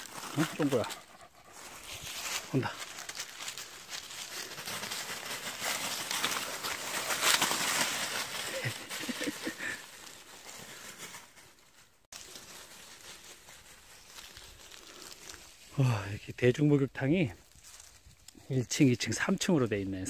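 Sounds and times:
dogs moving through leaves: 0.0 - 15.8
leaves crunching under footsteps: 0.0 - 16.2, 17.3 - 18.4.

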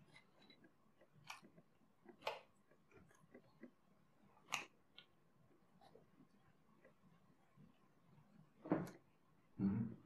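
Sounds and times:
chewing food: 0.0 - 7.7.

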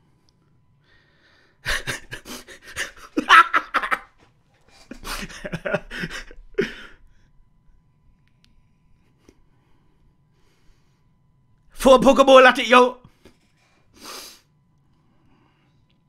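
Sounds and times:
man laughing hard: 1.6 - 4.2, 4.9 - 7.0.

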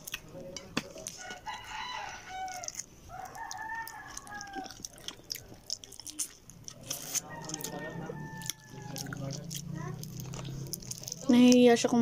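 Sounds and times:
sharp eating clicks: 0.0 - 12.0
rooster crowing: 1.2 - 5.0, 7.0 - 9.5.

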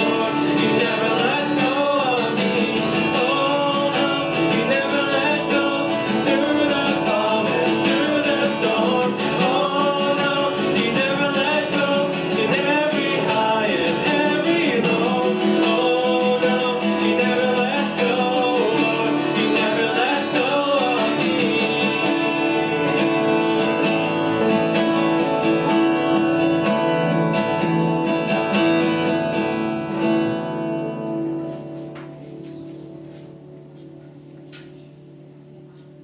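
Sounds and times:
man singing: 0.0 - 22.8
strummed acoustic guitar: 0.0 - 36.0.

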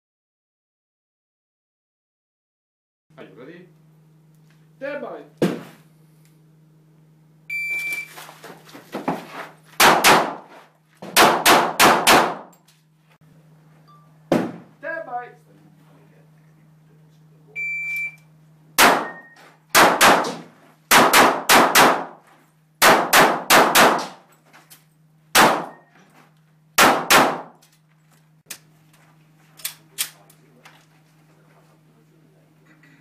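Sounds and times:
pistol shots: 9.8 - 10.4, 11.2 - 12.5, 18.8 - 22.2, 22.8 - 24.2, 25.3 - 25.8, 26.8 - 27.6.

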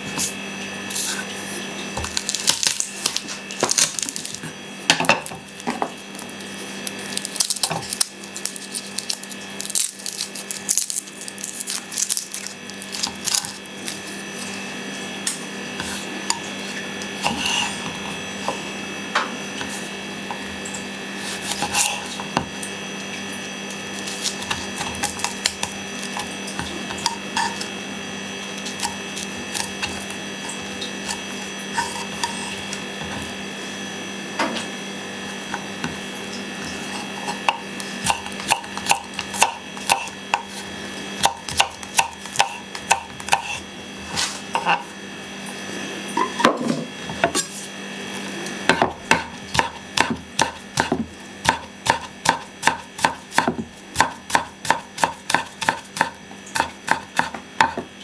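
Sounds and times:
garlic being peeled on board: 0.1 - 14.7, 21.1 - 22.6, 23.7 - 27.7, 28.5 - 33.3, 36.6 - 44.8, 48.2 - 57.9
knife cutting on wooden board: 17.2 - 18.0, 21.2 - 22.5, 36.8 - 44.8.

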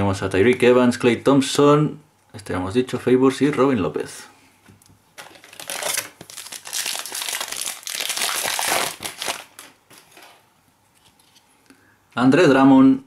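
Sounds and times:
foil wrapper crinkling: 5.2 - 10.4.

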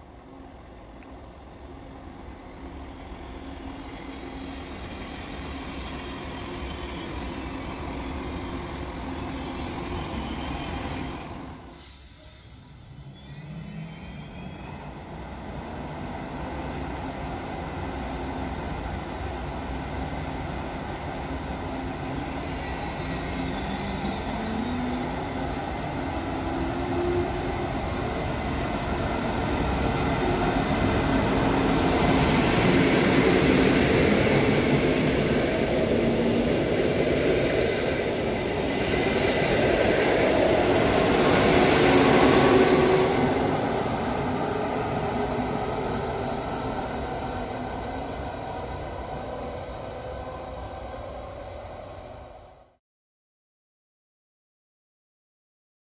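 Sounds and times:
train rumble: 22.8 - 52.2.

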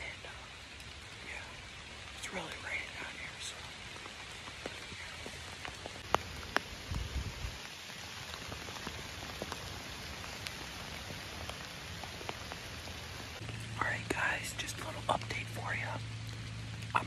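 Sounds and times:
rain falling in woods: 0.0 - 17.0
low rumble: 13.4 - 17.0.

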